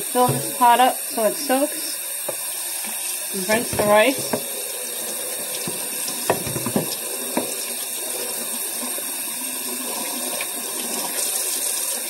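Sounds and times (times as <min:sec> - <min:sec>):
tap running into sink: 0:00.0 - 0:00.8, 0:02.2 - 0:04.6, 0:05.3 - 0:07.8.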